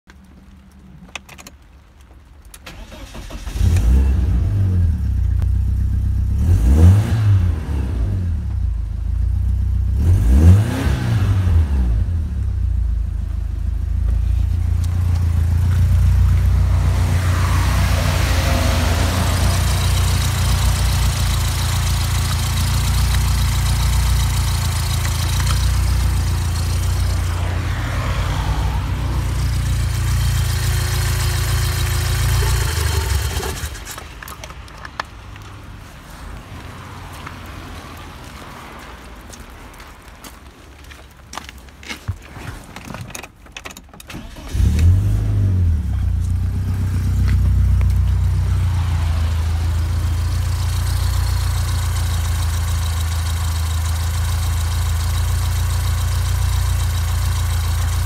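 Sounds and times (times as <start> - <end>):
car engine starting and revving: 2.6 - 34.4, 44.1 - 58.0
car engine idling: 12.2 - 34.8, 45.6 - 58.0.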